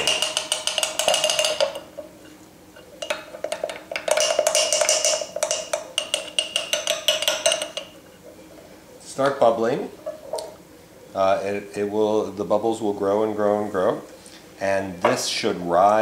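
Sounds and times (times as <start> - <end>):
spoon clinking against glass jar: 3.0 - 8.0.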